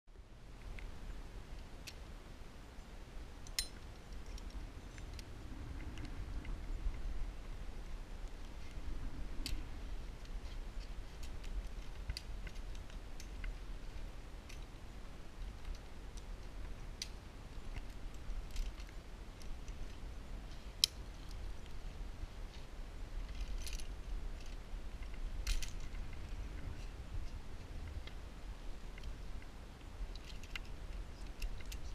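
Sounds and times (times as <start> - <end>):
metal climbing gear clinking: 3.4 - 5.2, 9.4 - 31.9
low rumble: 4.2 - 29.7.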